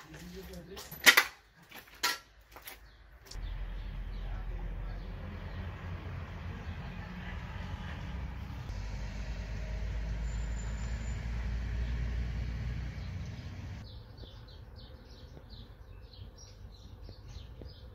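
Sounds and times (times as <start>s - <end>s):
small birds chirping: 2.7s - 8.7s, 10.1s - 17.9s
loud rumbling noise: 3.4s - 13.8s.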